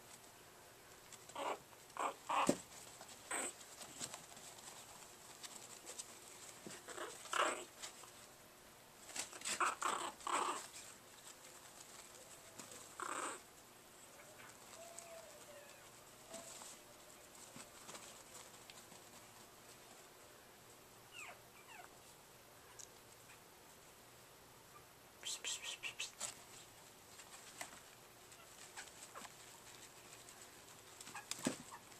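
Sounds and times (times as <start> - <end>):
puppies yapping and growling: 1.3 - 4.1, 6.6 - 8.0, 9.2 - 10.9, 11.7 - 13.4, 21.1 - 21.9, 31.0 - 31.9.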